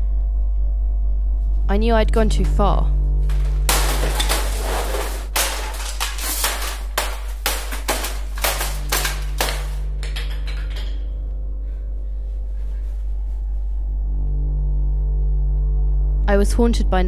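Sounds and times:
low musical drone: 0.0s - 4.2s, 8.8s - 17.0s
sharp knocks and bangs: 3.3s - 11.0s.

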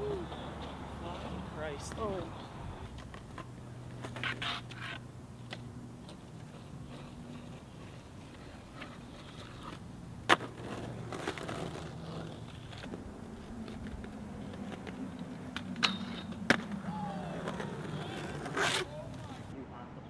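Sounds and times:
skateboard wheels rolling on concrete: 0.0s - 19.6s
skateboard clacks: 13.6s - 19.4s.

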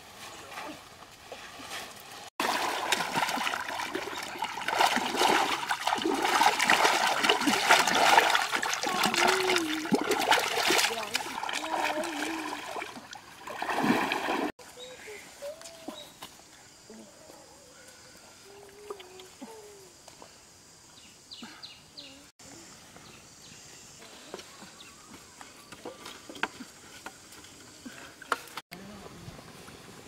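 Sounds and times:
river water splashing: 0.0s - 14.5s.

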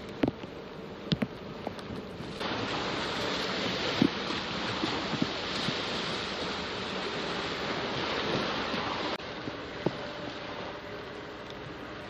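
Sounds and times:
water noise: 0.0s - 12.0s
wind: 0.0s - 12.0s.

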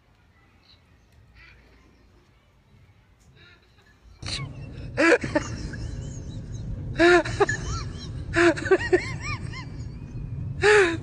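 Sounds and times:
low steady hum: 3.4s - 11.0s
woman laughing: 3.4s - 11.0s.

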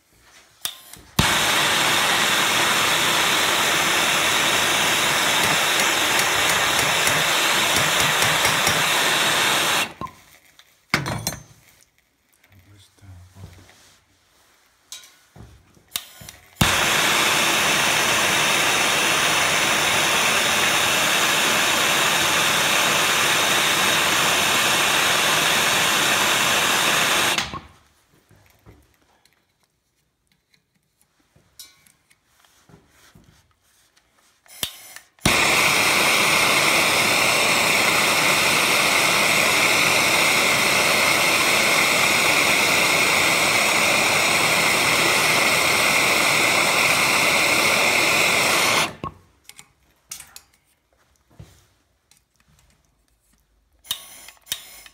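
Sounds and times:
gas torch hissing: 0.6s - 10.1s, 15.9s - 27.8s, 34.5s - 49.2s, 53.8s - 54.9s
gas torch igniting click: 0.6s - 10.1s, 15.9s - 27.8s, 34.5s - 49.7s, 53.8s - 54.9s.

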